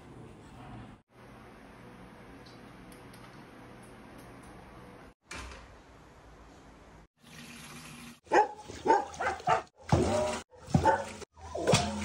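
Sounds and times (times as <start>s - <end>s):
dogs barking: 8.3s - 11.7s.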